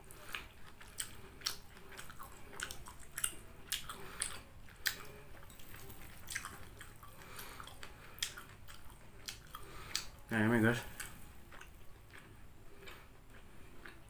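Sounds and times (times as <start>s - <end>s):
wet chewing mouth clicks: 0.1s - 10.2s.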